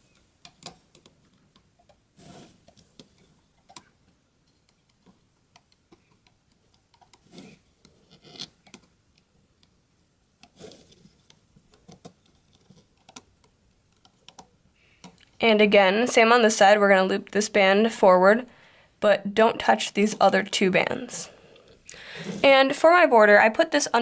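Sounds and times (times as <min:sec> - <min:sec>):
soft rubbing: 0:02.2 - 0:03.5, 0:10.6 - 0:13.0.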